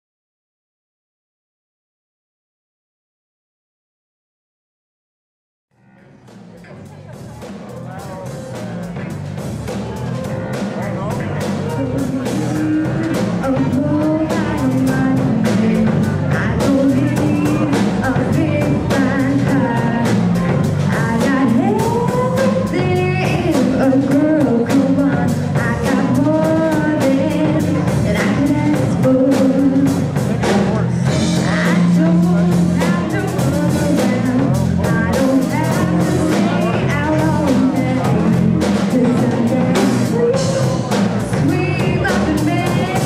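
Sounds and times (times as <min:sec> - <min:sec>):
drum kit: 0:05.8 - 0:43.0
guitar: 0:05.8 - 0:43.0
woman singing: 0:11.6 - 0:43.0.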